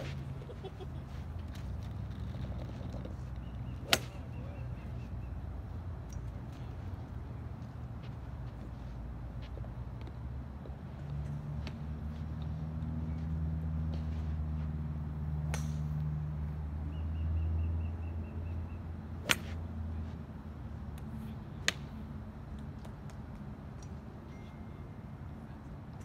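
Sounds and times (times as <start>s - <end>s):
golf clubs striking balls: 1.4s - 4.4s, 15.5s - 16.0s, 19.2s - 19.6s.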